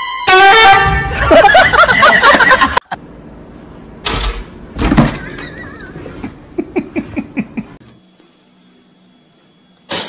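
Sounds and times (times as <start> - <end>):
woman laughing hard: 1.1 - 3.0, 5.2 - 7.8.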